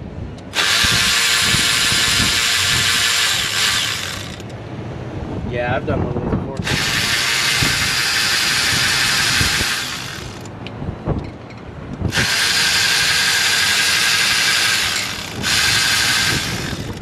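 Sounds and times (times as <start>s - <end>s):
power tool spinning out bolts: 0.6s - 4.5s, 6.6s - 10.5s, 12.1s - 17.0s.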